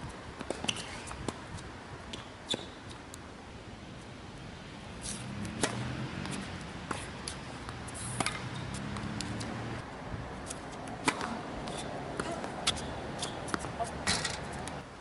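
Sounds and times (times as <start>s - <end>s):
tennis ball bouncing: 5.0s - 9.8s, 10.4s - 14.8s
tennis ball hit by racket: 5.0s - 9.8s, 10.4s - 14.8s.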